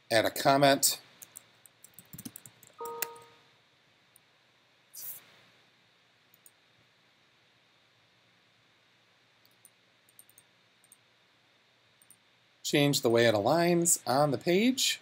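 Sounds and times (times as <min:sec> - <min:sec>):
keyboard and mouse clicks: 0:01.2 - 0:03.3, 0:09.4 - 0:11.0
brief pitched tone: 0:02.8 - 0:03.4.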